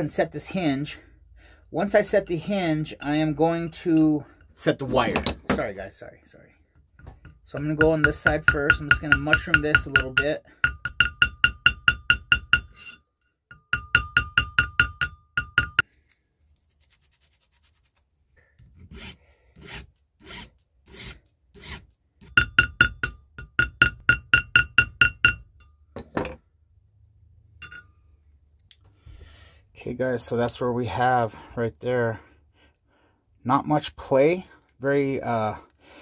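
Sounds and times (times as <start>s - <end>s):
small hammer tapping on metal: 7.0s - 15.8s, 22.2s - 26.3s.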